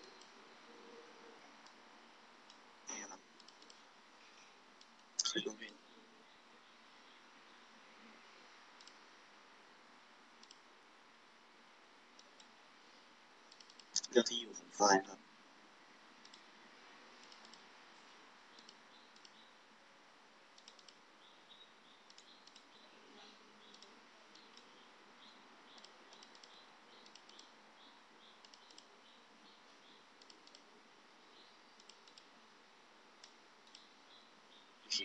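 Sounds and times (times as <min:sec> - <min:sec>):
computer mouse clicks: 0:00.0 - 0:00.4, 0:03.3 - 0:03.9, 0:04.8 - 0:05.8, 0:08.8 - 0:09.1, 0:10.4 - 0:10.7, 0:12.1 - 0:12.6, 0:13.5 - 0:14.0, 0:16.2 - 0:17.7, 0:18.5 - 0:19.5, 0:20.5 - 0:22.9, 0:23.6 - 0:27.6, 0:28.2 - 0:30.8, 0:31.4 - 0:32.4, 0:33.2 - 0:34.2
low steady hiss: 0:00.0 - 0:35.0.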